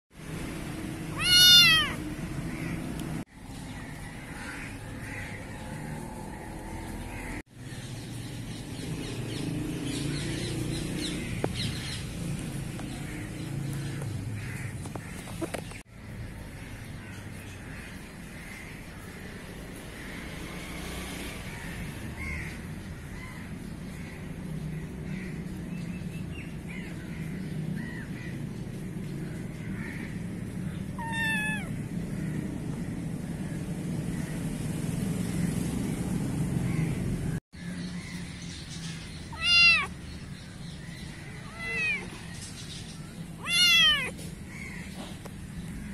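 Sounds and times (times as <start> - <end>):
small birds chirping: 0.2 - 20.2, 21.5 - 45.9
kitten meowing: 1.1 - 2.0, 30.9 - 31.8, 39.3 - 39.9, 41.5 - 42.1, 43.4 - 44.3.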